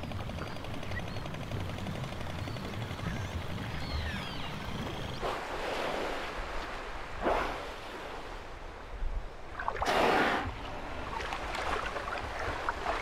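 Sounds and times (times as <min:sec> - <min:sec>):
killer whales exhaling: 0:09.8 - 0:10.6.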